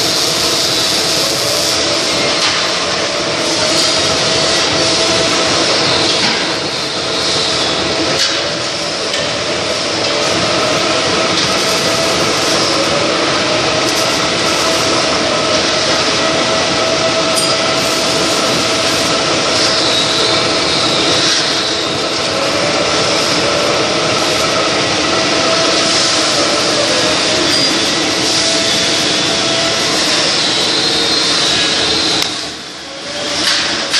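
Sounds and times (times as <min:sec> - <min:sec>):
milling machine cutting metal: 0:00.0 - 0:33.9.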